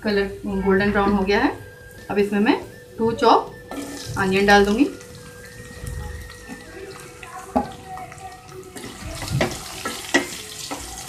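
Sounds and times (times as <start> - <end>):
onions sizzling in oil: 3.6 - 11.0.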